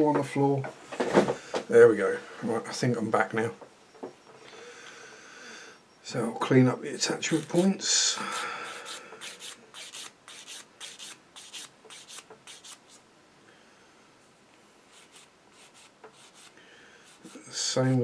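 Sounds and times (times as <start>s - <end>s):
plastic part rubbed on sanding stick: 8.2s - 13.0s, 14.9s - 17.7s.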